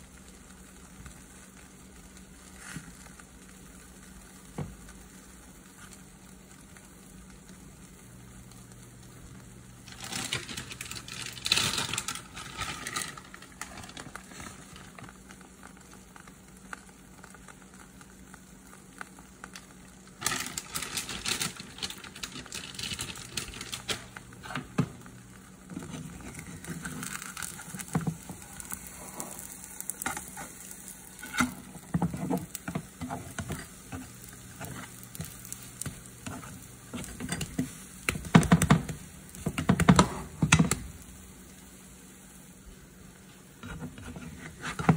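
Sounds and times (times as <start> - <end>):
batter sizzling in a frying pan: 0.0 - 44.9
spatula scraping a pan: 25.7 - 40.7, 43.6 - 44.9.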